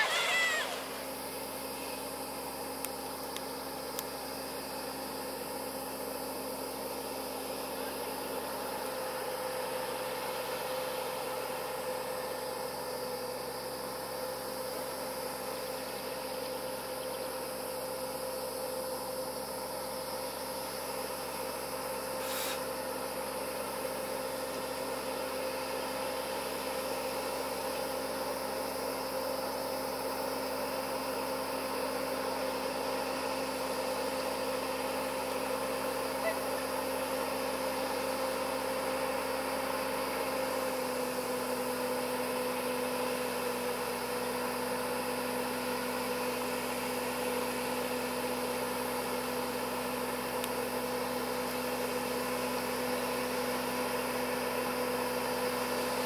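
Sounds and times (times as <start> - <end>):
distant diesel truck engine: 0.0 - 56.0
background hiss: 19.1 - 35.4.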